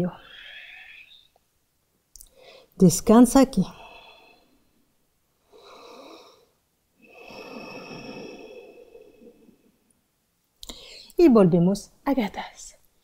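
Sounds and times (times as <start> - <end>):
woman breathing: 0.1 - 1.4, 2.2 - 2.8, 3.7 - 9.9, 10.6 - 11.2.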